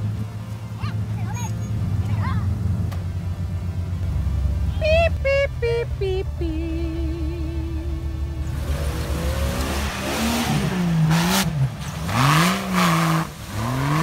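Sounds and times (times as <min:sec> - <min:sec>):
spinning tyres hissing: 0:00.0 - 0:14.0
truck engine revving hard: 0:06.4 - 0:14.0.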